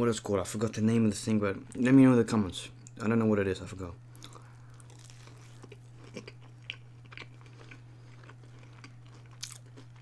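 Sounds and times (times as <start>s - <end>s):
chewing with soft crunches: 4.1s - 10.0s
biting into fried snack: 4.2s - 10.0s.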